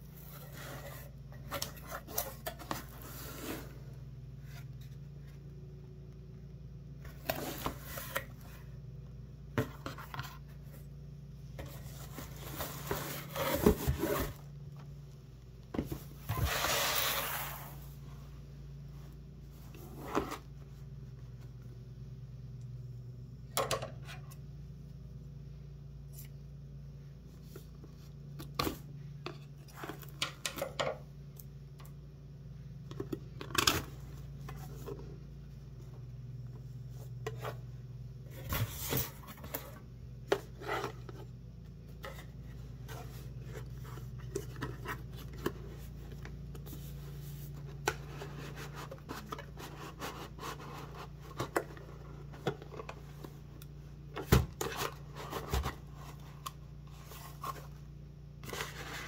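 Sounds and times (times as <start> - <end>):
packaging rustling and scraping: 0.0 - 5.4, 7.0 - 8.7, 11.6 - 14.5, 15.8 - 18.0, 19.5 - 20.8, 36.8 - 53.6, 54.2 - 59.0
steady low hum: 0.0 - 59.0.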